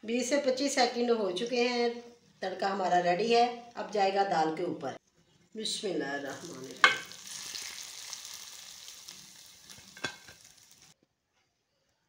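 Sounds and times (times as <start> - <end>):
hot oil sizzling: 6.2 - 11.0.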